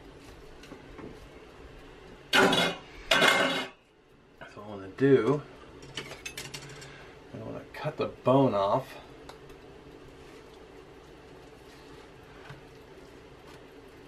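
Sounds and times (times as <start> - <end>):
pan and metal utensils clattering: 2.3 - 3.8, 5.8 - 7.0.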